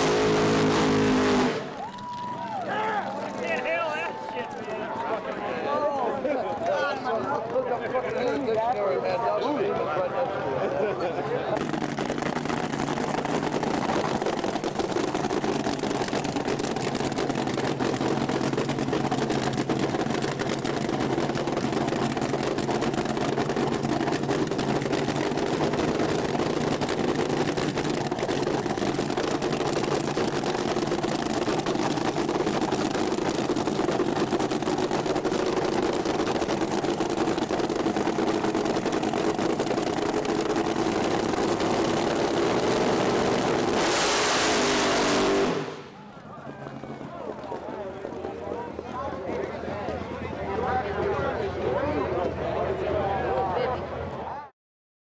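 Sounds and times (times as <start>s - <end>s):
drag racing car engine idling: 11.6s - 52.9s.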